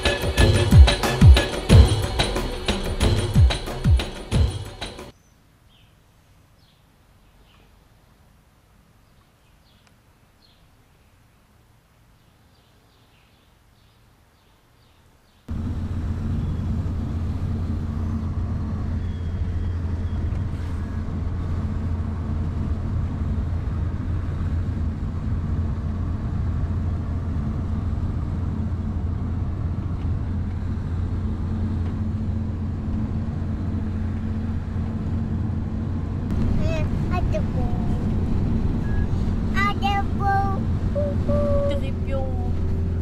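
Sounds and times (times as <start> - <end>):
car engine and tyres drone: 15.5 - 43.0.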